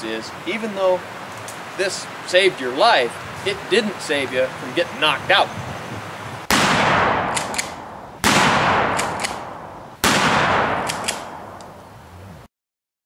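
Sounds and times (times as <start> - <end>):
gunshots echoing: 6.5 - 11.8.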